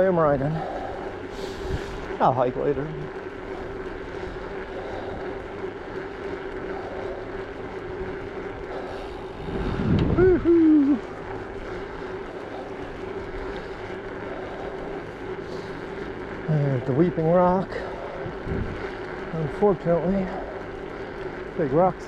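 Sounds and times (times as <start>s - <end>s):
bicycle tyres humming on road: 0.0s - 22.0s
low rumble of wind: 0.0s - 22.0s
wind on microphone: 8.7s - 11.0s, 18.2s - 18.8s.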